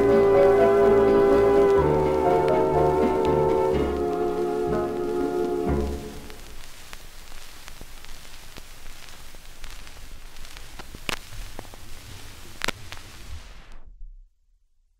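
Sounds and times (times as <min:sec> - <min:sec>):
record surface hiss and crackle: 0:00.0 - 0:14.2
record pops: 0:05.9 - 0:13.9.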